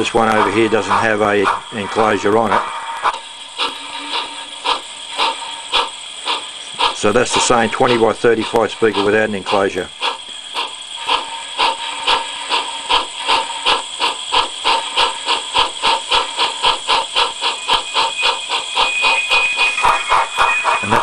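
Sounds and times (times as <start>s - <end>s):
steam locomotive chuffing: 0.0s - 21.0s
thin high tone: 17.4s - 21.0s.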